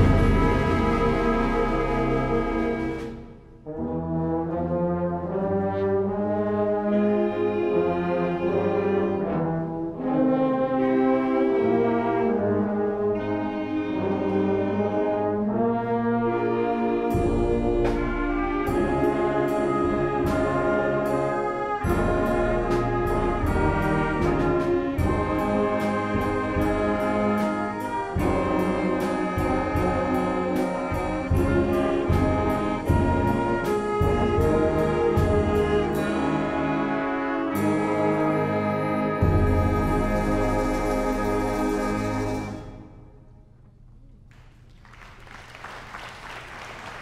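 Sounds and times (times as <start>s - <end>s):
percussion beat: 0.0s - 3.3s
concert band playing: 0.0s - 3.9s, 12.4s - 42.9s
trombones: 0.0s - 43.6s.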